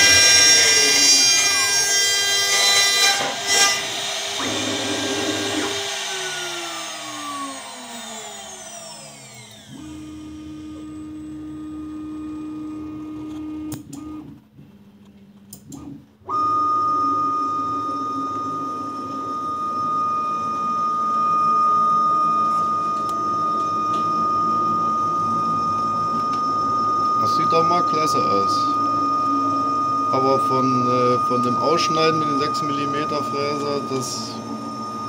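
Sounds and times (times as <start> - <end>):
router cutting acrylic: 0.0 - 14.1, 15.7 - 35.0
low machine hum: 4.3 - 35.0
spindle whine falling in pitch: 16.2 - 35.0
loud high steady tone: 16.3 - 35.0.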